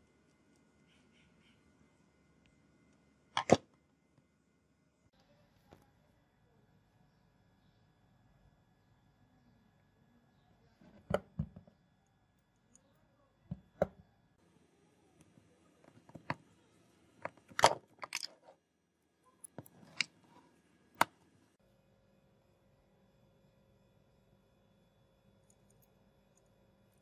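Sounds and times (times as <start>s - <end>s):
metal parts clicking and knocking: 17.2s - 18.5s.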